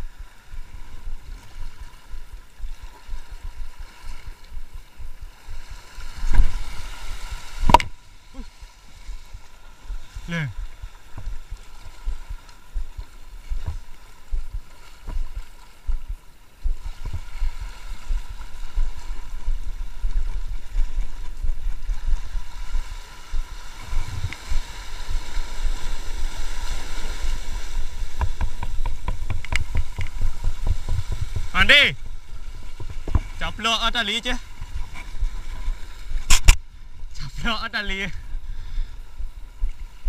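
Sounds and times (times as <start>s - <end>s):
sea waves breaking on rocks: 0.0s - 40.0s
wind gusting on microphone: 9.0s - 37.5s.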